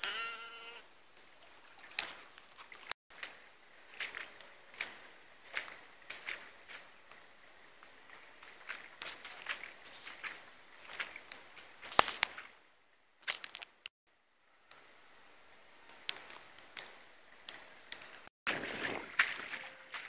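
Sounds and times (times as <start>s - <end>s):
footsteps on wet grass: 1.4s - 12.6s, 13.2s - 13.9s, 15.9s - 20.0s.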